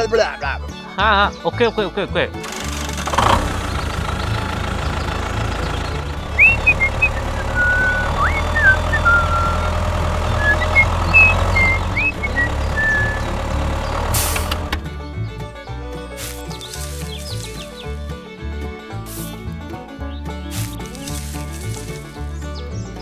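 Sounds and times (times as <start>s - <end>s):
toy tractor engine running: 2.4s - 14.8s
whistled bird-like chirps: 6.2s - 9.8s, 10.4s - 13.3s.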